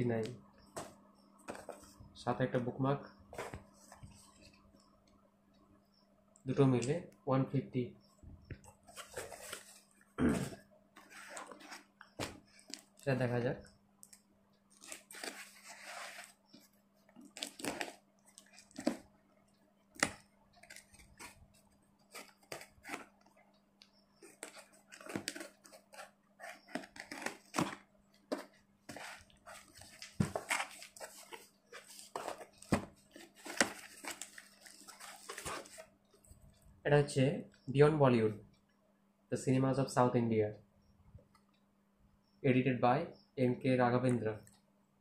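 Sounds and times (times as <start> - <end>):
cardboard rustling and crinkling: 0.7 - 2.1, 3.3 - 4.7, 8.7 - 10.0, 11.0 - 13.0, 14.7 - 19.1, 20.0 - 23.4, 24.2 - 36.3.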